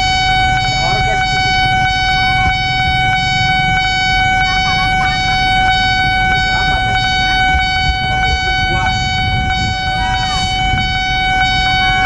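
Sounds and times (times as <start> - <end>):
level crossing alarm tone: 0.0 - 12.0
road traffic engines rumbling: 0.0 - 12.0.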